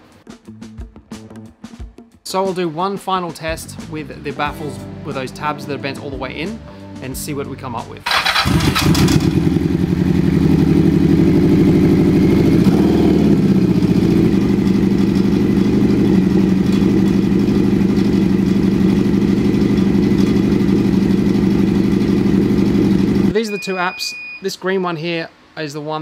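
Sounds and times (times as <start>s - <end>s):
motorcycle engine idling: 8.1s - 23.4s.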